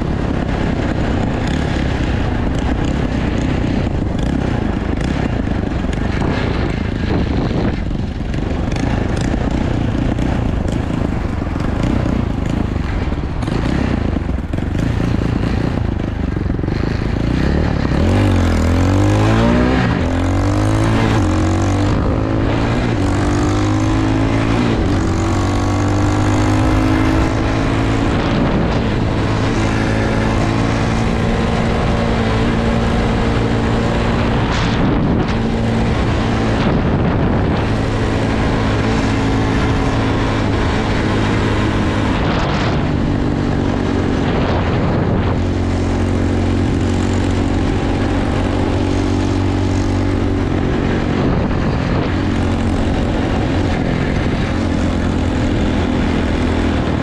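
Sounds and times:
dirt bike engine: 0.0 - 57.0
wind rush: 0.0 - 57.0.

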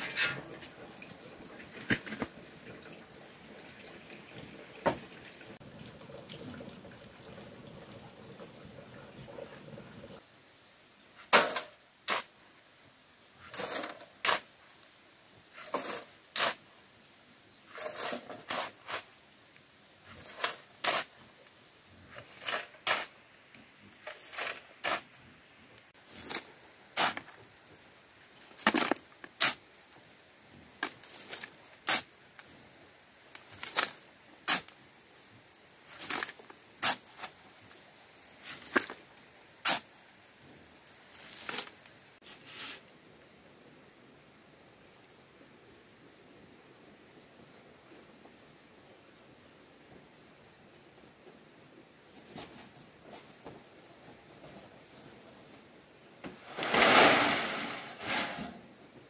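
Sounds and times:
scraping strokes: 17.7 - 19.1, 41.2 - 42.8, 56.4 - 58.6.

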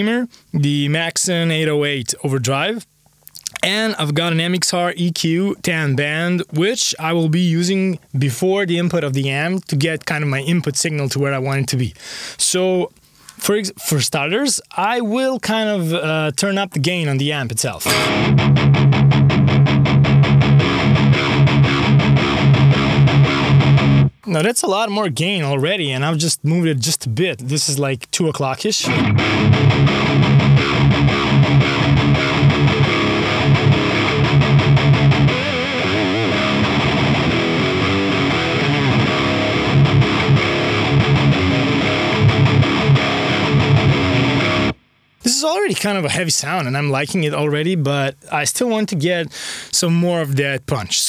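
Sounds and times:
distorted electric guitar riff: 17.8 - 24.3, 28.8 - 45.1.

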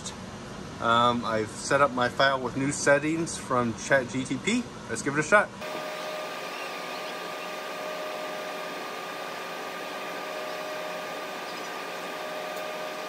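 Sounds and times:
machine hum with whine: 5.6 - 13.0.

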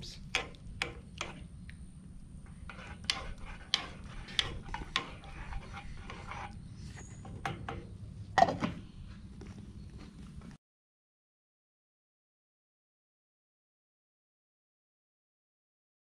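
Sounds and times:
metal spoon scraping a saucepan: 2.4 - 8.6.

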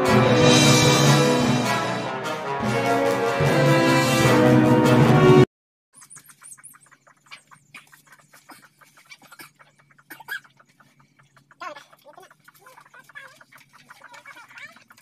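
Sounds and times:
chickens clucking: 6.0 - 15.0
small birds chirping: 6.0 - 15.0.

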